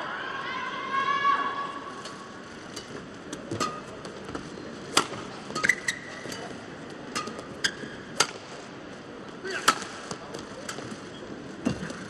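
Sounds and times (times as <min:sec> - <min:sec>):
racket hitting shuttlecock: 0:04.9 - 0:06.5, 0:07.1 - 0:08.5, 0:09.5 - 0:10.8.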